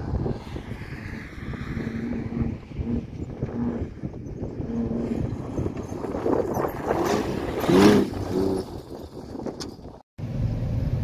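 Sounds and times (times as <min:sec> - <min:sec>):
wind buffeting microphone: 0:00.0 - 0:10.0
truck engine revving: 0:01.4 - 0:09.5.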